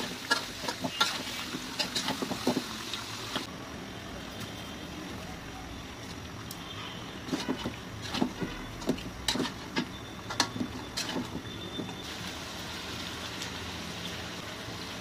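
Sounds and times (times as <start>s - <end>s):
metal spatula scraping a pan: 0.0s - 2.6s, 7.2s - 11.4s
frying pan sizzling: 0.0s - 3.6s, 7.2s - 15.0s.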